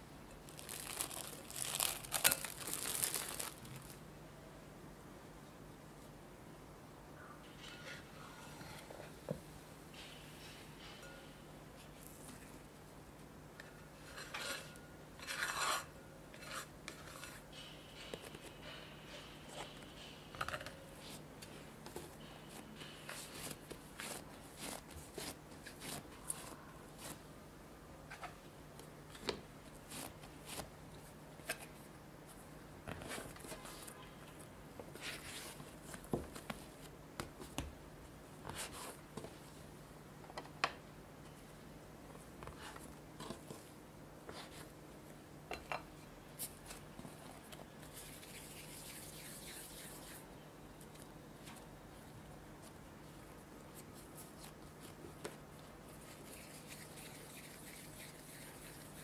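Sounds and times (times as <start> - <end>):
dough being handled: 0.4 - 4.0, 21.0 - 27.3, 46.4 - 59.0
spatula scraping glass bowl: 14.1 - 17.3.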